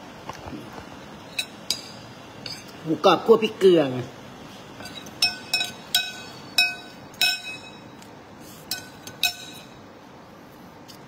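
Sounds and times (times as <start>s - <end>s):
metal spoon clinking on plate: 1.3s - 2.8s, 4.8s - 7.9s, 8.7s - 9.8s.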